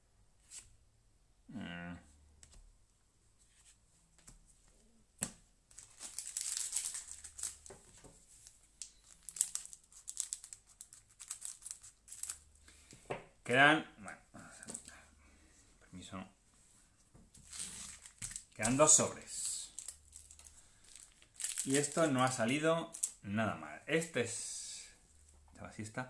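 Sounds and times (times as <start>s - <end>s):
foil wrapper crinkling: 5.7s - 12.5s, 17.4s - 23.2s.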